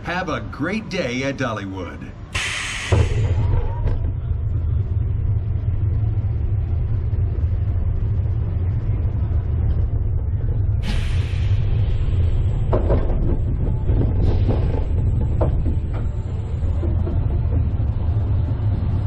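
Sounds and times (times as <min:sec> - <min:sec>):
roller coaster wheels rumbling: 0:00.0 - 0:19.0
short hiss: 0:02.4 - 0:03.2.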